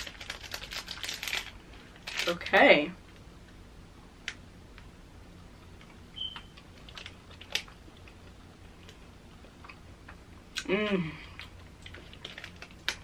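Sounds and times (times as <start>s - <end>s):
wrapper handling: 0.0s - 2.6s
biting and chewing: 5.7s - 10.7s, 11.3s - 13.0s.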